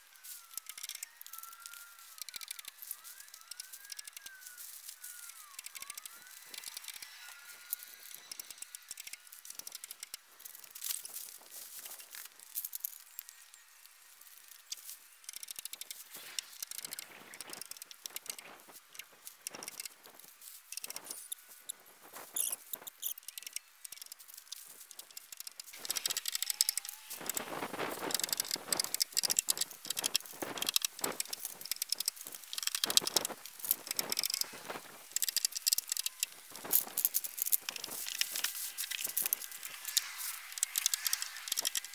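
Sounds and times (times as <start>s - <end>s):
plastic wrap rustling and crinkling: 24.2s - 41.9s.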